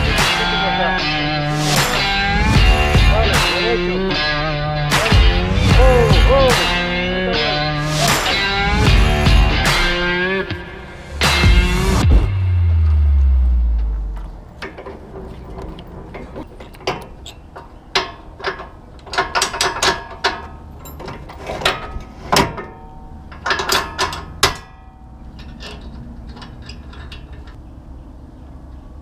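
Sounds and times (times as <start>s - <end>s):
metal trailer hitch clanking: 14.2s - 27.7s.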